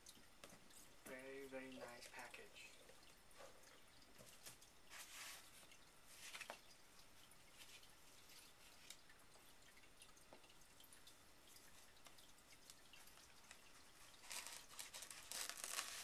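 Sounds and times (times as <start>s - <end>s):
cardboard rustling and scraping: 4.2s - 6.6s.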